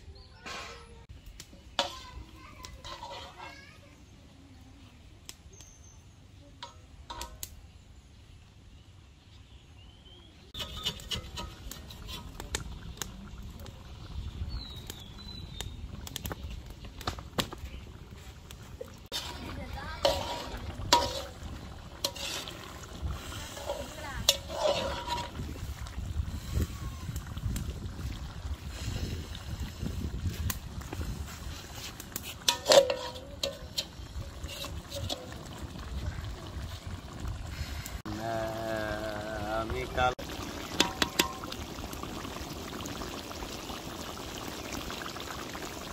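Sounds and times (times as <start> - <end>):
metal spatula scraping iron pan: 0.4 - 1.0, 1.7 - 3.8, 10.5 - 12.4, 19.1 - 25.6, 31.5 - 35.5
curry bubbling in a pan: 9.8 - 45.9
metal spoon clinking on pan: 32.5 - 35.2
metal pan ringing: 32.5 - 35.4.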